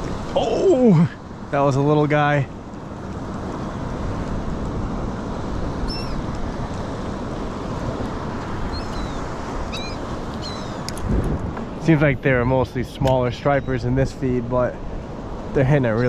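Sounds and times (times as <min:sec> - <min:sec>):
wind: 0:00.0 - 0:16.0
seabird calls: 0:05.8 - 0:06.3, 0:08.6 - 0:11.0, 0:12.5 - 0:14.2, 0:15.6 - 0:16.0.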